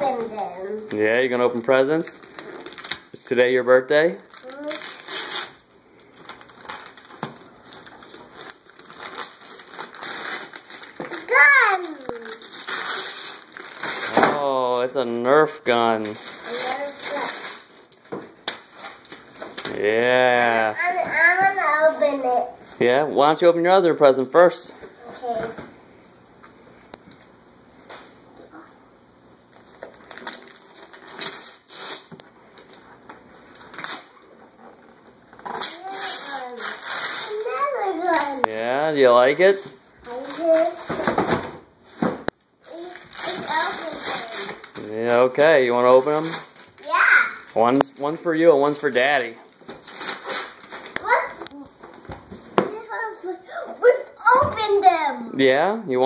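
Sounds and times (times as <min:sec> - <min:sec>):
wrapping paper tearing and crinkling: 0:02.0 - 0:03.2, 0:04.2 - 0:14.4, 0:15.8 - 0:21.0, 0:29.5 - 0:41.4, 0:42.6 - 0:52.0.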